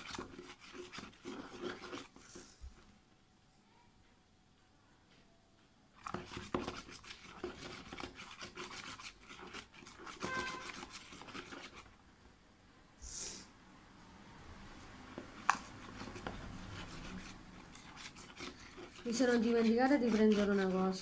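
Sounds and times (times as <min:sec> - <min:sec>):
utensil scraping a plastic tub: 0:00.0 - 0:02.5, 0:06.0 - 0:11.9, 0:15.1 - 0:21.0
short hiss: 0:13.0 - 0:13.5.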